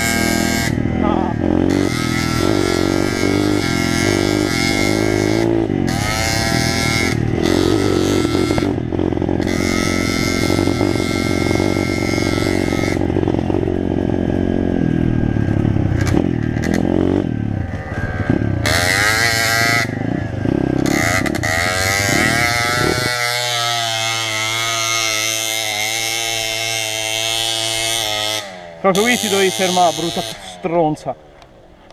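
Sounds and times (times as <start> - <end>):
dirt bike engine revving: 0.0 - 30.9
motorcycle engine idling: 0.1 - 23.0.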